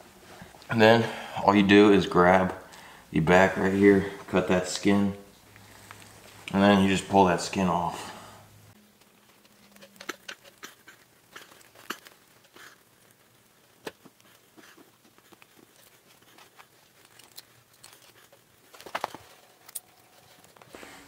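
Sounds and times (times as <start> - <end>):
skin tearing and crackling: 9.0 - 20.7.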